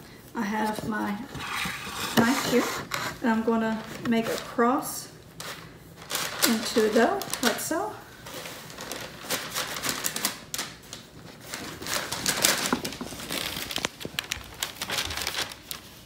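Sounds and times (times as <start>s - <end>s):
paper rustling: 8.2s - 16.0s.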